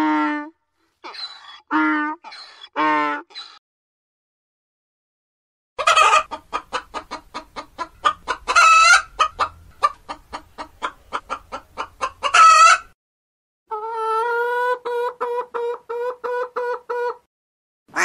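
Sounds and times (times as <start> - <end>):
hen squawking: 1.0 - 3.6
hen clucking: 5.8 - 13.0, 13.7 - 17.3.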